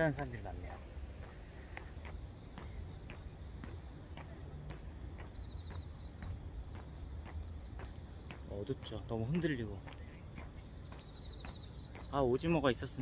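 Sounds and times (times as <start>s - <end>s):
footsteps on a path: 0.0s - 13.0s
insects trilling: 0.0s - 13.0s.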